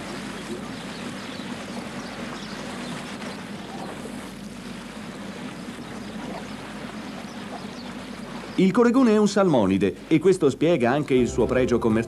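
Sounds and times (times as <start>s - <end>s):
boat motor humming: 0.0s - 10.1s
water wash: 0.0s - 12.0s.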